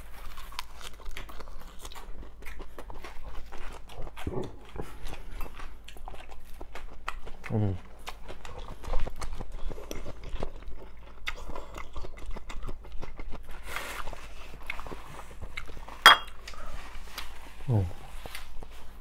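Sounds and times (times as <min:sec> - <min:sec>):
person chewing: 0:00.0 - 0:19.0
tableware clinking: 0:16.0 - 0:16.4.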